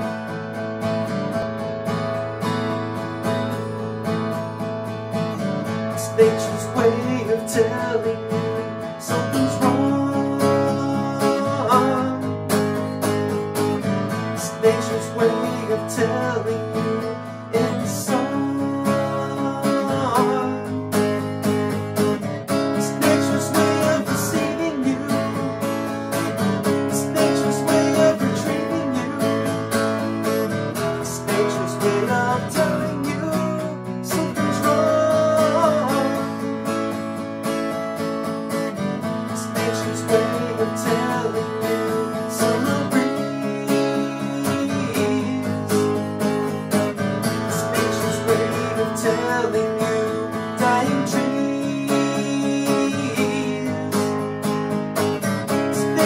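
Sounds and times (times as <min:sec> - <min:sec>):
acoustic guitar playing: 0:00.0 - 0:56.0.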